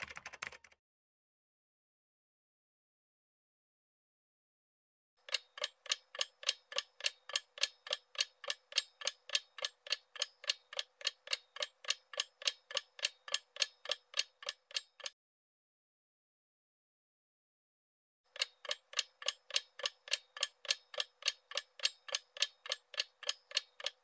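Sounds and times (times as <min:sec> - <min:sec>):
clock ticking: 0:05.2 - 0:15.2, 0:18.3 - 0:24.0.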